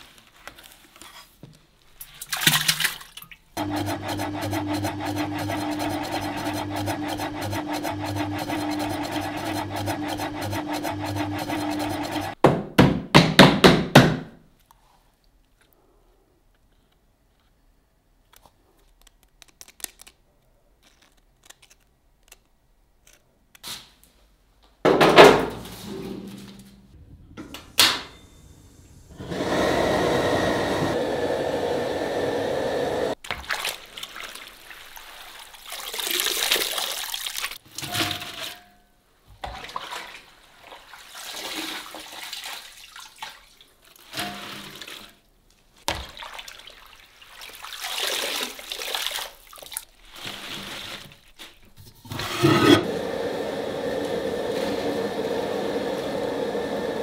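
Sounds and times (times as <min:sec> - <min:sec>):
potato slices sloshing in water: 0:33.2 - 0:38.5, 0:39.4 - 0:44.2, 0:45.8 - 0:51.7.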